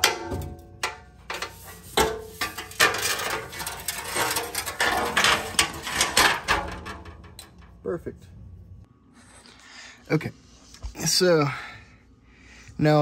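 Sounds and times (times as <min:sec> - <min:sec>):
metal panel scraping and rattling: 0:00.0 - 0:07.7.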